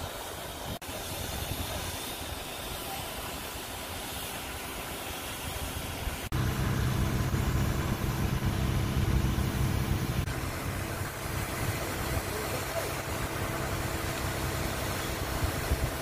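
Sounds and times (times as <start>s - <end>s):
burning straw hissing: 0.0s - 16.0s
fire engine motor droning: 6.3s - 16.0s.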